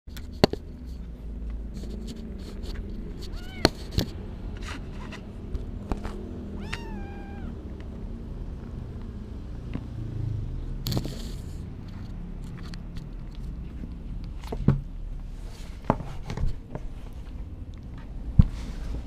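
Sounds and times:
kitten meowing: 0:03.3 - 0:03.8, 0:06.5 - 0:07.7.

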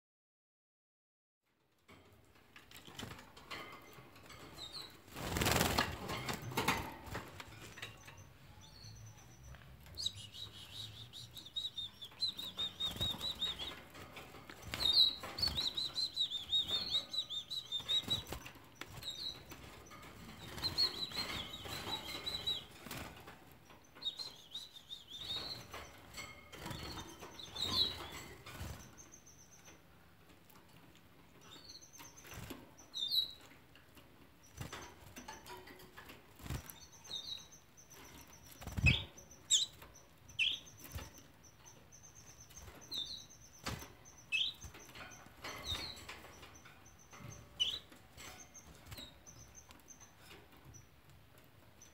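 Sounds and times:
chicks chirping: 0:03.5 - 0:30.2, 0:31.4 - 0:33.7, 0:34.3 - 0:51.9
wing flutters: 0:05.0 - 0:07.5, 0:38.5 - 0:39.6.

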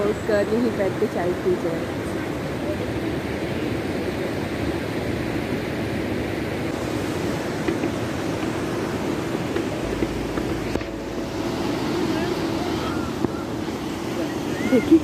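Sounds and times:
river water rushing over rocks: 0:04.1 - 0:15.0.

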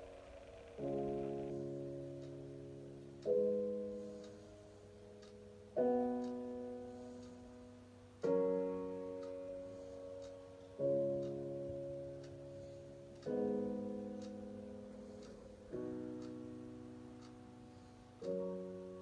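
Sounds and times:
slow piano chords: 0:00.0 - 0:19.0.

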